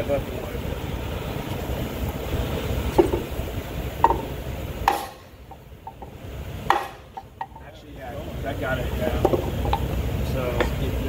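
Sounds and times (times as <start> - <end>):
steady low rumble: 0.0 - 11.0
sharp knocks on wood: 6.7 - 7.5.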